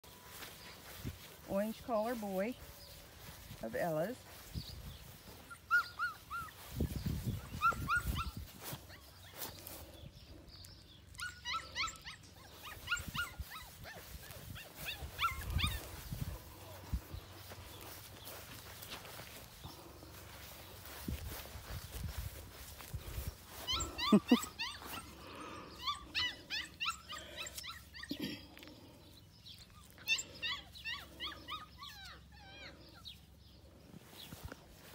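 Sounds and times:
puppy yipping and whimpering: 0:05.4 - 0:09.4, 0:11.1 - 0:16.7, 0:23.4 - 0:28.4, 0:29.6 - 0:33.3.

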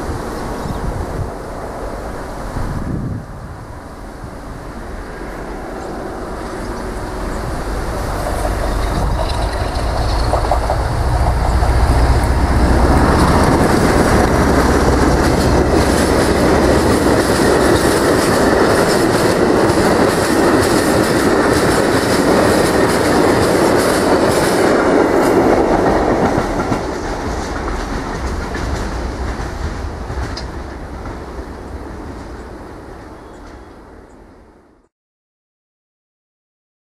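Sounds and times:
diesel locomotive engine rumble: 0:00.0 - 0:34.1
wagons rattling past: 0:06.6 - 0:29.6
train wheel clicks: 0:07.8 - 0:31.2.

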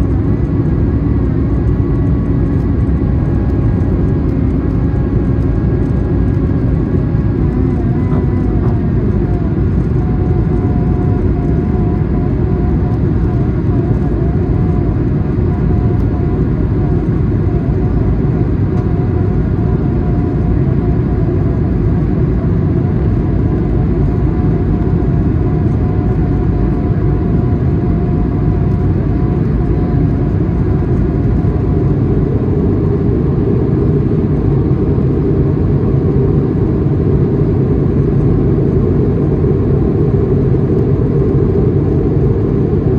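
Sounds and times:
faint wavering whine: 0:00.0 - 0:42.9
jet engine and airflow rumble: 0:00.0 - 0:42.9.

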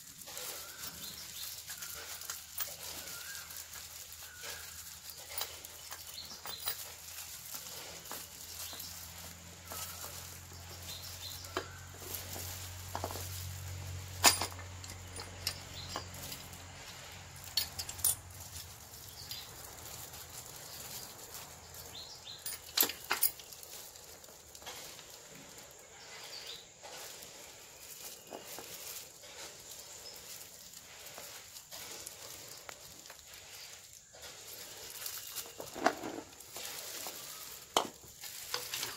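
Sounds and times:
metal parts clinking and knocking: 0:00.3 - 0:08.2, 0:11.9 - 0:16.6, 0:17.4 - 0:21.5, 0:22.3 - 0:24.4.

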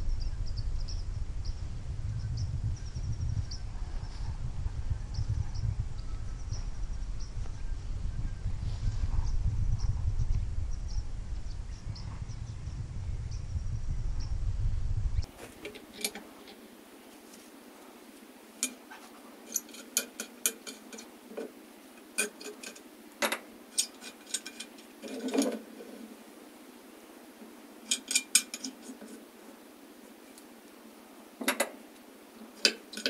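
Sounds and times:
wind rumble on microphone: 0:00.0 - 0:15.4
metal clinks and taps: 0:18.6 - 0:25.6, 0:27.8 - 0:29.2.

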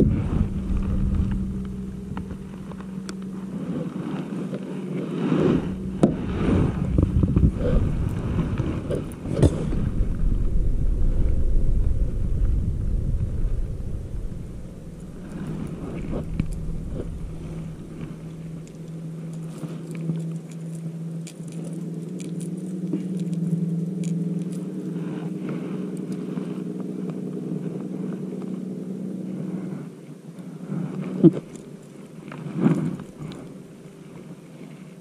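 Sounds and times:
motor hum: 0:00.0 - 0:35.0
small metal clicks of hooks: 0:18.6 - 0:24.9.

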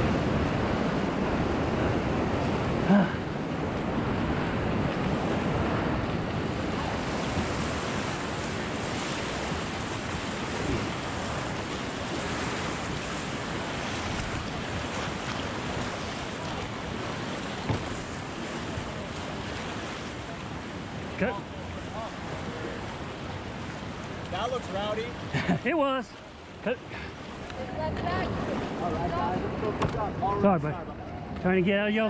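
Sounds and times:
whitewater rapids rushing: 0:00.0 - 0:32.0
brief thump: 0:17.6 - 0:17.9.

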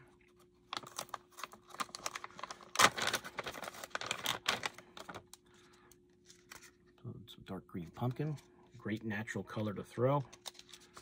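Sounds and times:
plastic bag crinkling: 0:00.7 - 0:06.7.

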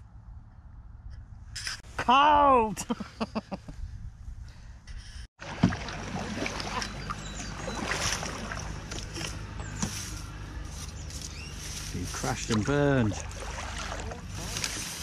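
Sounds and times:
wind rumble on microphone: 0:03.6 - 0:05.2
paddles splashing water: 0:05.4 - 0:15.0.

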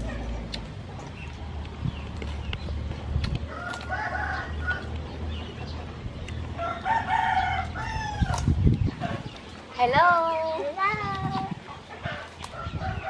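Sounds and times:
rooster crowing: 0:03.5 - 0:04.9, 0:06.6 - 0:08.4.

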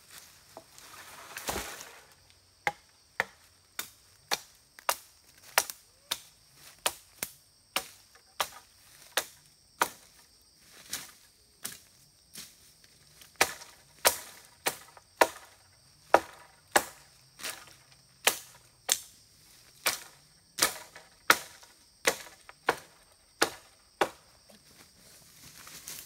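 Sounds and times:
blade chopping wood: 0:13.4 - 0:17.6, 0:19.8 - 0:24.2.

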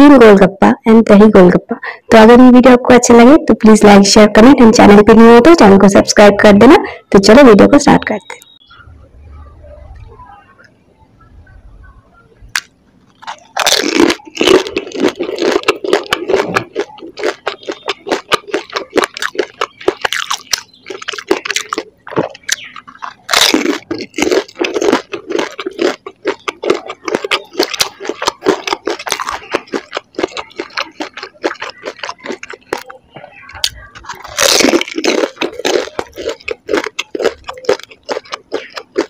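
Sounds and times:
crunching fried snack shells: 0:12.6 - 0:39.0.

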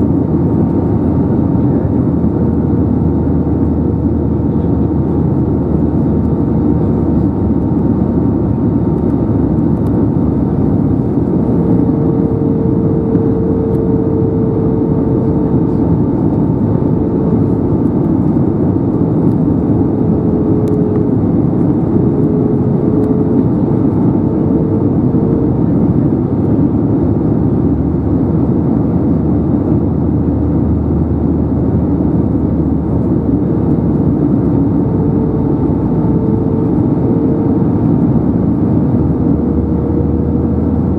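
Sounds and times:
airflow in aircraft cabin: 0:00.0 - 0:40.9
faint steady whine: 0:00.0 - 0:40.9
jet engines: 0:00.0 - 0:40.9
low hum: 0:00.0 - 0:40.9.

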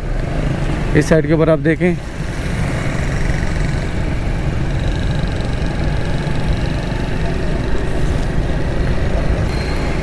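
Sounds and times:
street traffic: 0:00.0 - 0:10.0
motorcycle engine running: 0:02.1 - 0:10.0.

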